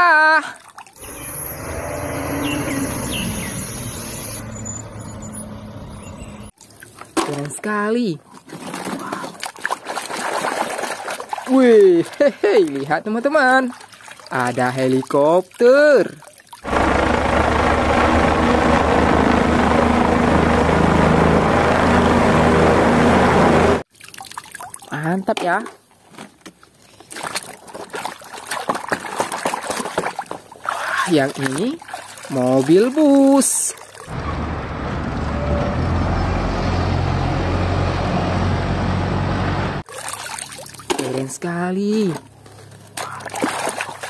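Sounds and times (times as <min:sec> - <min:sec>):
helicopter flying overhead: 0:01.0 - 0:06.4, 0:16.7 - 0:23.8
bus engine droning: 0:01.1 - 0:06.5, 0:16.7 - 0:23.8, 0:34.2 - 0:39.8.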